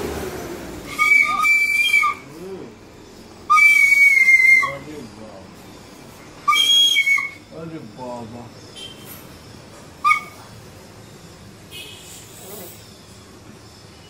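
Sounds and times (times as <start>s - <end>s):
shrill toy whistle blasts: 0.9s - 2.3s, 3.4s - 4.9s, 6.4s - 7.6s, 10.0s - 10.5s.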